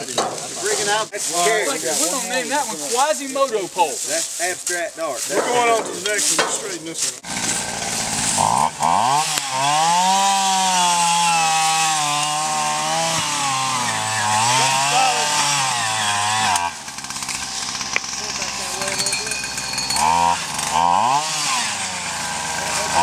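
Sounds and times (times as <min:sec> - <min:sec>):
earth auger engine running: 0:07.2 - 0:23.0.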